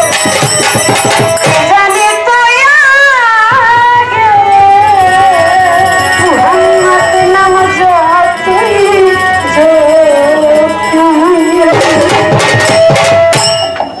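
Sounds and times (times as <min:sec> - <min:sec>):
hand drums: 0:00.0 - 0:02.7, 0:10.7 - 0:14.0
violin: 0:00.0 - 0:14.0
woman singing: 0:01.4 - 0:12.7.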